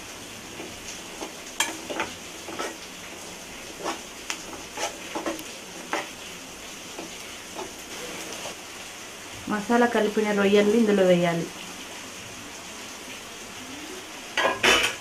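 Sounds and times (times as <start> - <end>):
onions sizzling in hot oil: 0.0 - 15.0
spoon scraping a pan: 0.6 - 6.3, 6.9 - 8.6.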